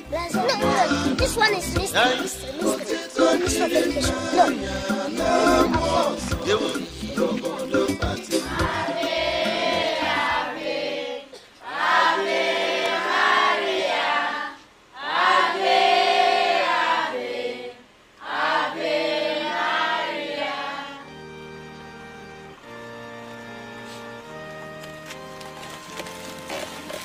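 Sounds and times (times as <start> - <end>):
group singing a hymn: 0.3 - 21.4
music of held notes: 19.2 - 27.0.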